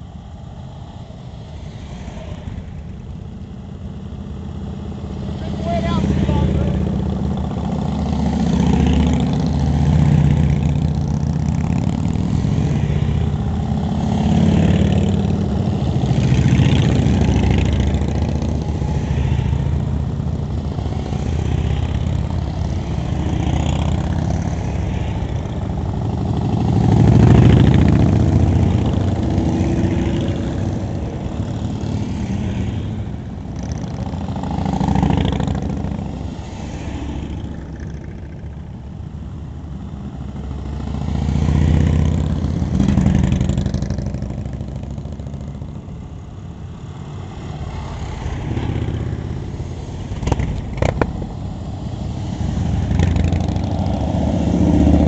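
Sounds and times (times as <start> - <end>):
motorcycles riding past: 0.0 - 55.0.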